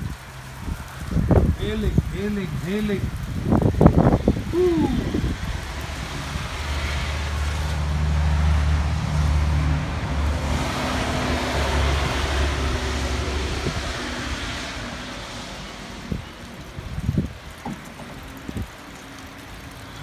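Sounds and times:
hail falling: 0.0s - 8.0s, 15.6s - 20.0s
vehicle engine humming: 0.0s - 20.0s.

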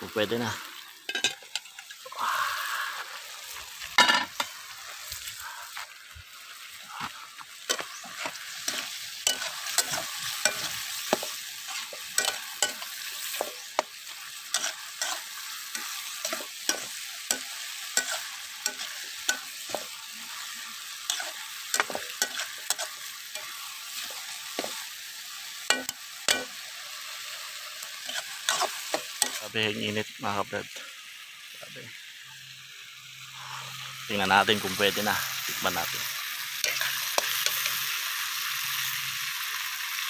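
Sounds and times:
food sizzling in sauce: 0.0s - 40.0s
metal spatula scraping a wok: 7.6s - 24.9s, 28.0s - 29.5s, 36.6s - 37.8s.

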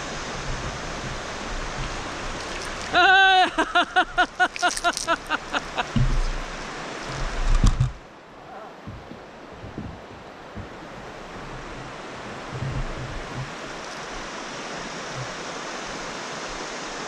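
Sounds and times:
wind on microphone: 0.0s - 3.0s, 5.3s - 17.0s
low wind thumps: 0.0s - 4.4s, 5.3s - 8.2s, 8.8s - 14.3s
river water rushing: 0.0s - 17.0s.

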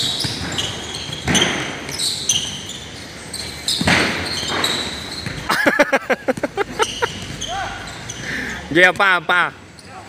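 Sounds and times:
sneaker squeaks: 0.0s - 5.6s, 6.2s - 9.0s, 9.6s - 10.0s
basketball bouncing on court: 3.7s - 5.5s, 6.2s - 7.6s.

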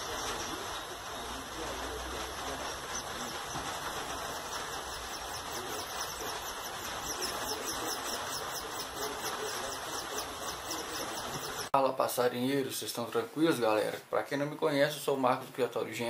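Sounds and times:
songbird chirping: 0.0s - 11.7s
steady rushing noise: 0.0s - 11.7s.

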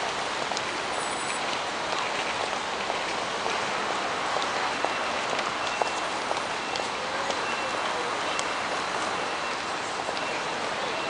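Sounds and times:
traffic hiss: 0.0s - 11.0s
faint high beeps: 4.8s - 8.6s, 9.2s - 11.0s.

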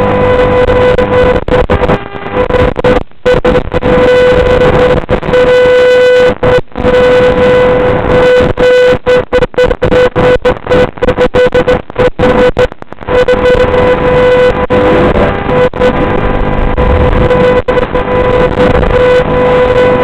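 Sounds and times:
loud electronic buzz: 0.0s - 20.0s.

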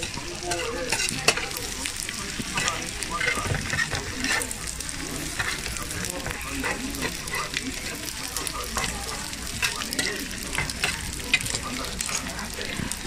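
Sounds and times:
metal spatulas scraping a tray: 0.0s - 1.6s, 2.5s - 4.6s
food sizzling on a griddle: 0.0s - 13.0s.

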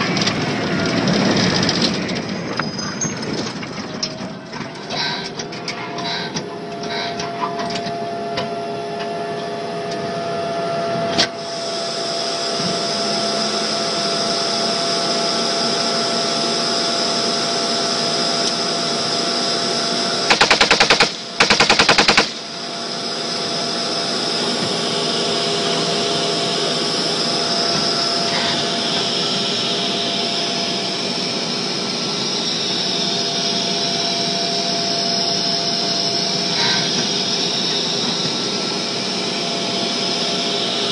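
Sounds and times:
tank engine with high whine: 0.0s - 40.9s
machine gun bursts: 20.3s - 22.5s.

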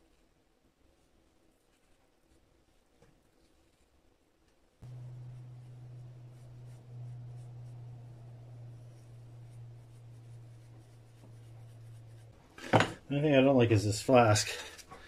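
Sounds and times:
steady low hum: 4.8s - 15.0s.

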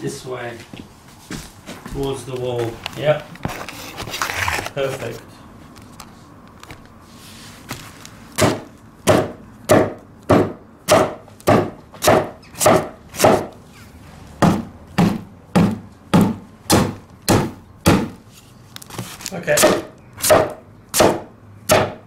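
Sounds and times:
hammer striking floorboard: 8.4s - 13.5s, 14.4s - 18.2s, 19.6s - 22.0s.

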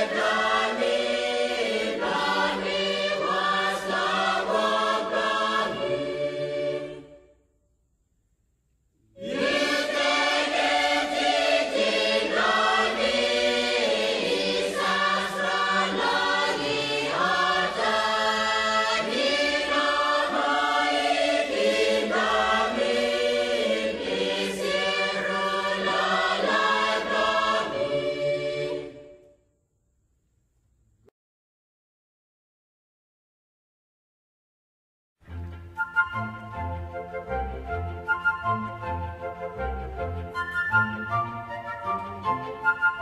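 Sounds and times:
choir singing: 0.0s - 7.4s, 9.2s - 29.4s.

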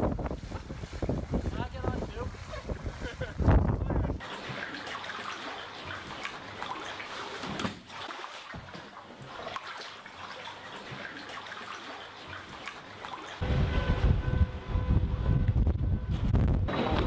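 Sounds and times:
wind buffeting microphone: 0.0s - 4.2s, 13.4s - 17.0s
broom pushing water: 0.0s - 13.8s
water sloshing and trickling: 0.0s - 14.5s.

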